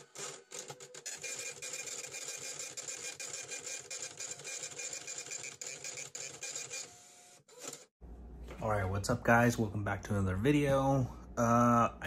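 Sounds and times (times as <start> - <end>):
small machine clicking and whirring: 0.0 - 7.9.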